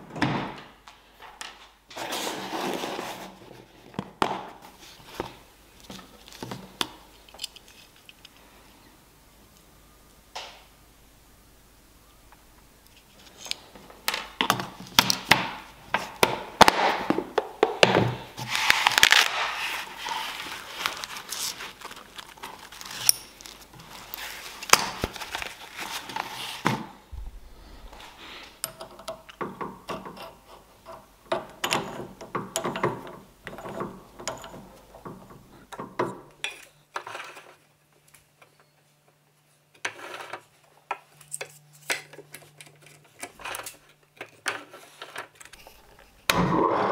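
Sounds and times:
clicks and knocks of handling tools: 5.2 - 8.4, 28.6 - 46.1
faint hum: 6.7 - 14.4, 27.0 - 28.8.

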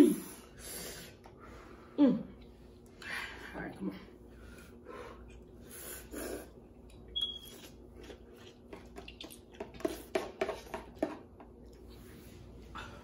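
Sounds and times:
forks tapping plastic containers: 9.6 - 11.5.

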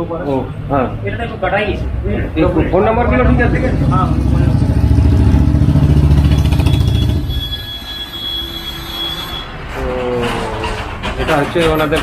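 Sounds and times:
vehicle engine pulsing: 0.8 - 12.0.

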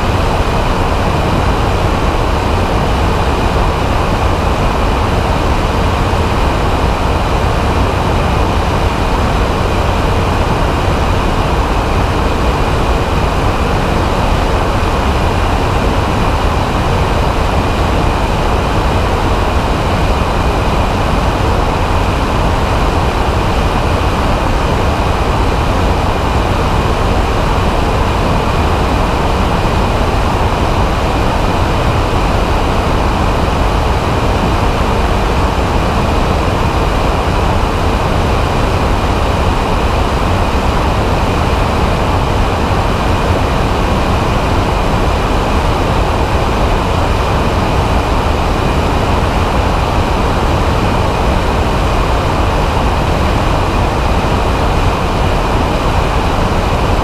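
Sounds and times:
aircraft engine and propeller drone: 0.0 - 57.0
wind rushing over microphone: 0.0 - 57.0.

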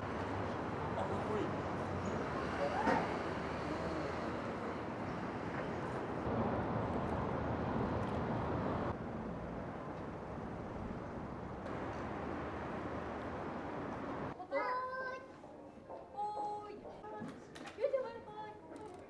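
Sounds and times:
distant street traffic hum: 0.0 - 14.4.

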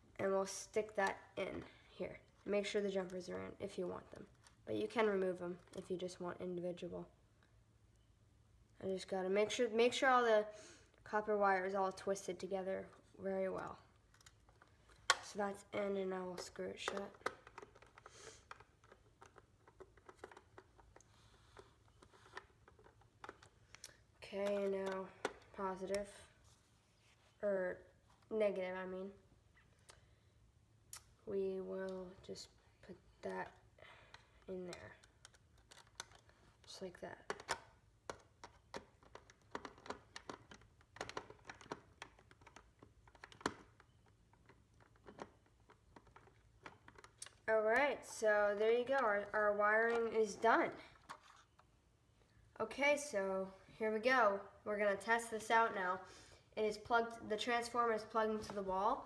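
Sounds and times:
screwdriver clicks and scratches: 35.0 - 36.3.

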